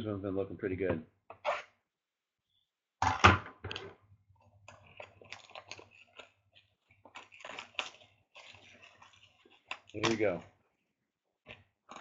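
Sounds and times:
packaging crinkling: 4.7s - 10.4s
plastic packaging ripping: 7.2s - 10.4s.

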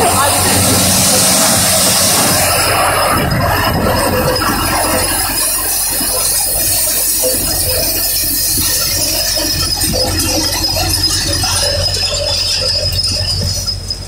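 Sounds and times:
thresher machine running: 0.0s - 14.0s.

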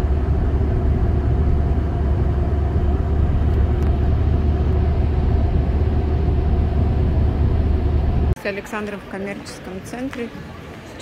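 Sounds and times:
car road rumble: 0.0s - 8.4s.

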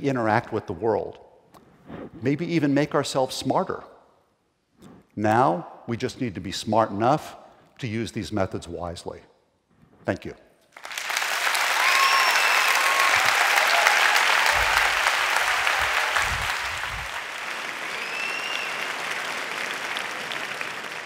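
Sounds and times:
audience applauding: 10.8s - 21.0s.

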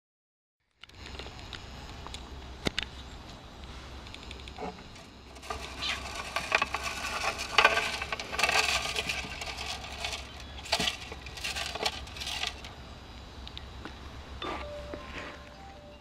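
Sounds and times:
gravel rattling in plastic container: 5.0s - 12.8s.

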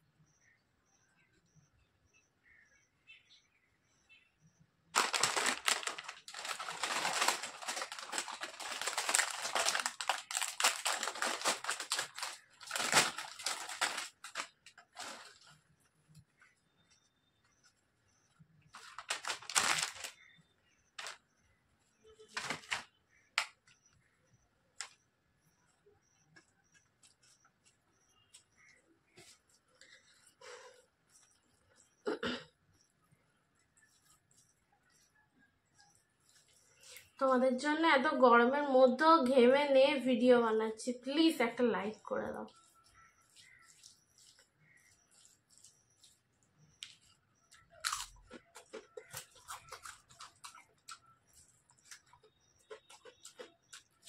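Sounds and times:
potato chips crunching: 5.0s - 15.5s, 18.8s - 20.2s, 43.0s - 54.0s
soft ticks of rice: 24.8s - 32.0s, 42.5s - 47.8s.

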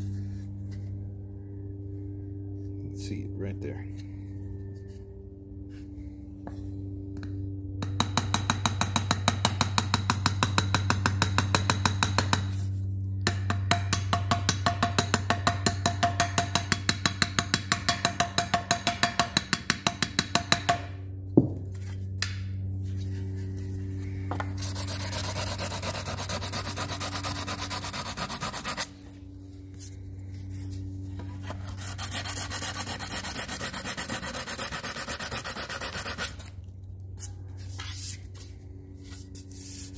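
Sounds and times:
hammer tapping on metal: 7.8s - 12.5s, 13.2s - 20.9s
hand sanding aluminum: 24.5s - 29.0s, 31.2s - 36.5s.

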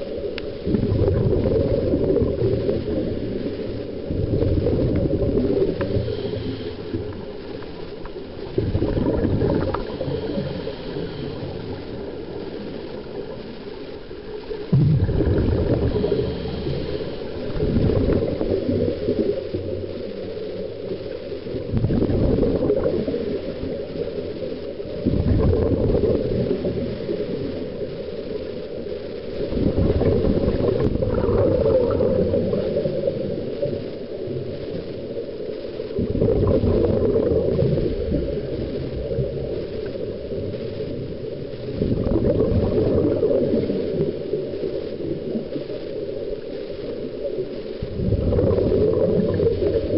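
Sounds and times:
underwater exhaled bubbles rumbling: 0.0s - 49.9s.

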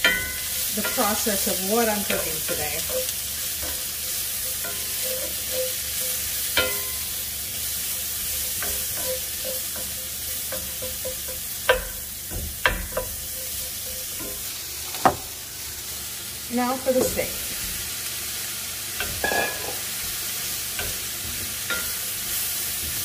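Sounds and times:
onion sizzling in a skillet: 0.0s - 23.0s.

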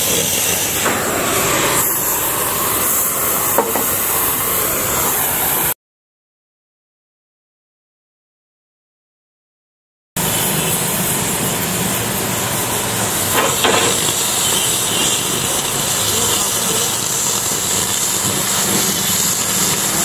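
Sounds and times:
cutting torch hissing: 0.0s - 5.8s, 10.2s - 20.0s.

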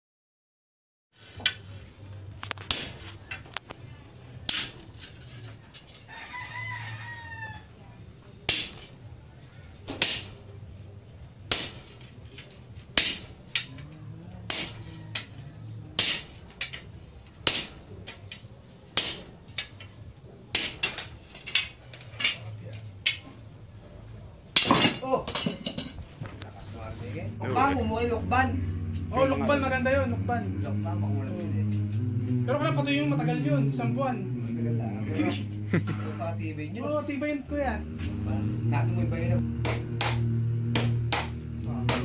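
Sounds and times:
rooster crowing: 6.0s - 8.0s, 13.7s - 15.9s.

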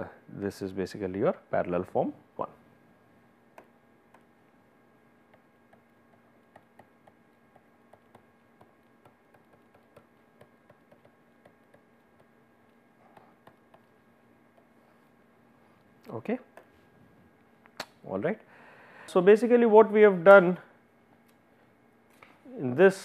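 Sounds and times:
faint electrical hum: 0.0s - 23.0s
stylus tapping on pen tablet: 5.3s - 14.8s.

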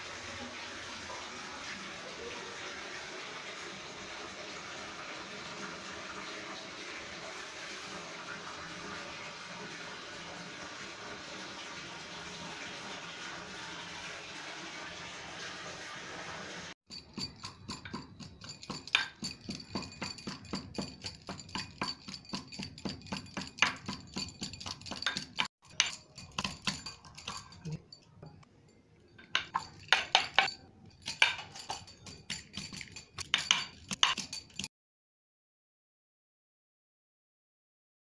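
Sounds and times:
metal spoon scraping steel bowl: 16.9s - 28.1s, 29.2s - 34.7s
person speaking: 27.2s - 28.4s.

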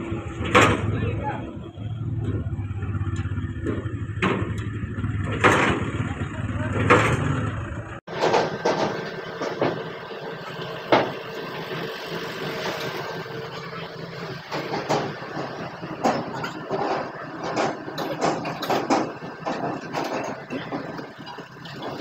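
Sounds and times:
truck engines running: 0.0s - 22.0s
metallic clanks from steel ramp: 0.2s - 1.3s, 2.0s - 11.4s, 12.6s - 22.0s.

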